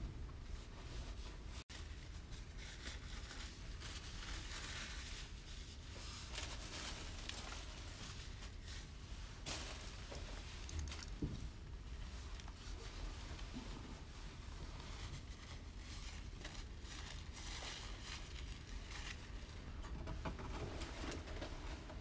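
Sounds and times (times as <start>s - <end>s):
pastry rustling and crinkling: 0.5s - 22.0s.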